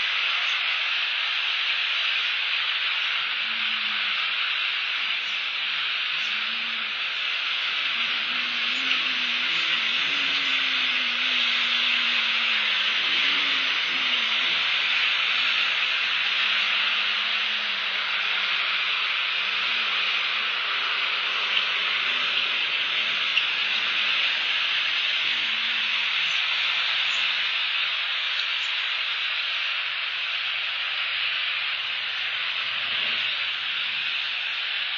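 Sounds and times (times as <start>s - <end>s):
heavy rain hissing: 0.0s - 34.9s
faint low hum: 2.9s - 29.6s.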